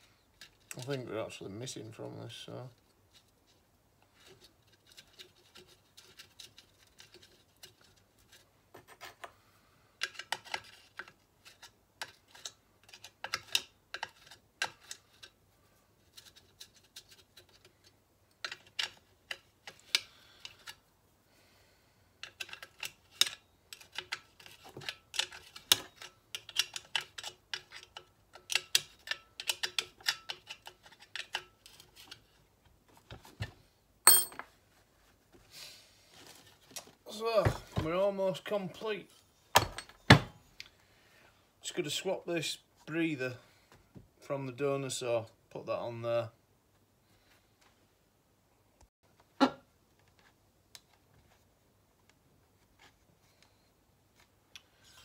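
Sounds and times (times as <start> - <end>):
sharp metal clank: 34.1 - 34.4.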